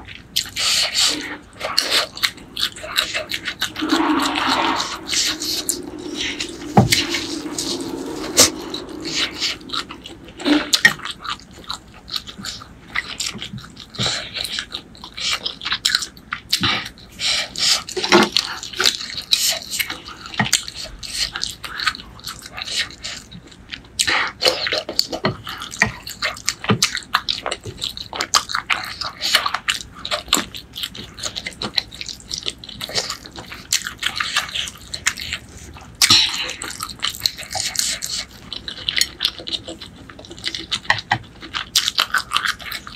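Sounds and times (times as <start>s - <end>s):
wet chewing and slurping: 20.4s - 42.9s.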